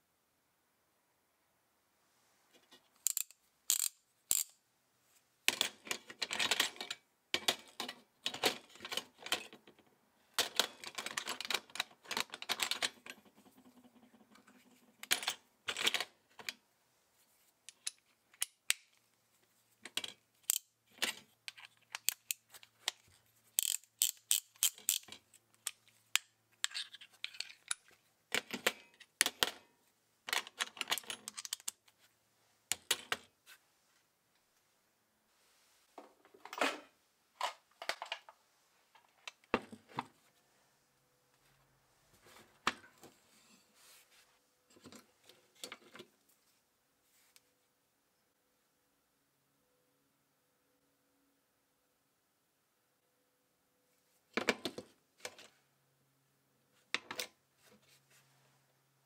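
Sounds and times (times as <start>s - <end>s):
ratchet wrench clicking: 3.1s - 4.5s, 23.6s - 25.1s.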